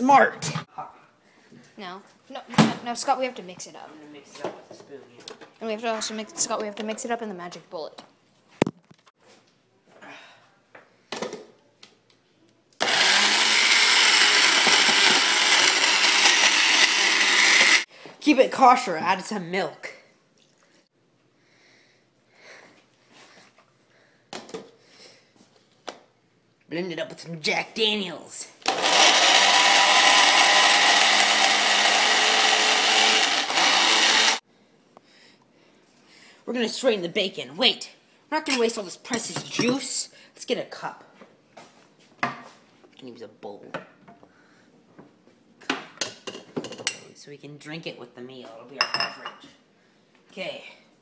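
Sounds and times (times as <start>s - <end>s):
blender running: 12.8s - 17.9s, 28.6s - 34.4s.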